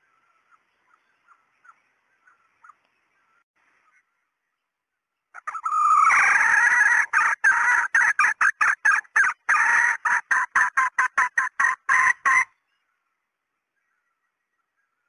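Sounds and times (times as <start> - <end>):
hen cackling: 5.4 - 12.6.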